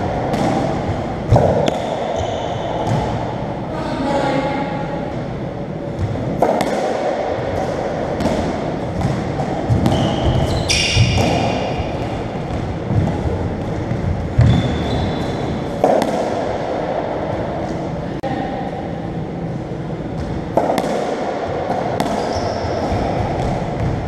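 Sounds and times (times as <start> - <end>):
shoes squeaking: 1.6 - 2.8, 9.6 - 12.3, 12.9 - 15.8, 22.2 - 23.4.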